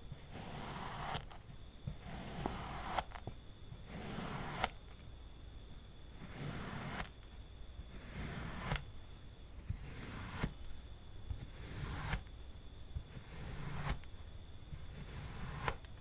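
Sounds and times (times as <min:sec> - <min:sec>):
knife cutting gritty sand: 0:00.3 - 0:01.4, 0:02.0 - 0:03.2, 0:03.8 - 0:04.8, 0:06.2 - 0:07.2, 0:07.9 - 0:08.9, 0:09.8 - 0:10.6, 0:11.4 - 0:12.2, 0:13.1 - 0:14.0, 0:14.8 - 0:15.8.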